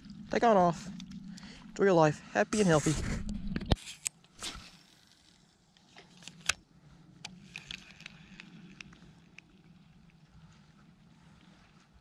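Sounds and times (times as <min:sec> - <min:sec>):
fishing reel clicks: 0:07.3 - 0:09.5.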